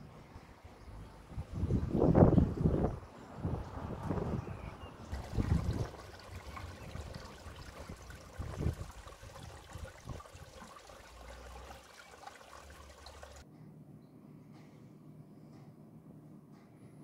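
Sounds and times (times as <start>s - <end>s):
water trickling into pond: 0.1s - 13.4s.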